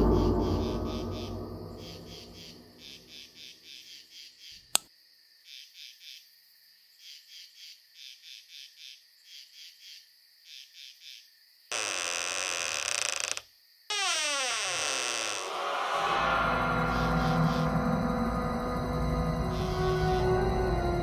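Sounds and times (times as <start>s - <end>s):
crickets chirping: 0.0s - 2.6s, 15.1s - 21.0s
loud noise sting: 0.0s - 2.6s, 15.2s - 21.0s.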